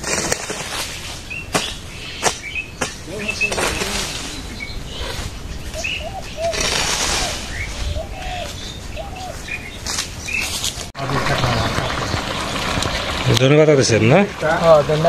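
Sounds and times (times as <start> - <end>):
hoe scraping and chopping soil: 0.0 - 8.3
birds chirping: 0.8 - 15.0
birds cooing: 1.9 - 10.5.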